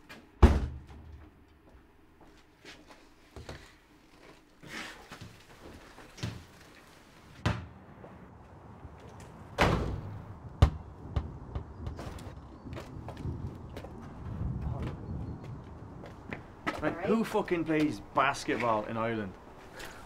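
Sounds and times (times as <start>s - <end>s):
door closing and banging: 0.4s - 1.1s, 9.6s - 10.2s.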